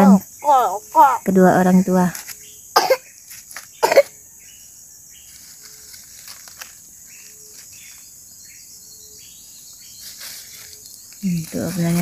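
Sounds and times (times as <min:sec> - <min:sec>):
insects chorus: 0:00.0 - 0:12.0.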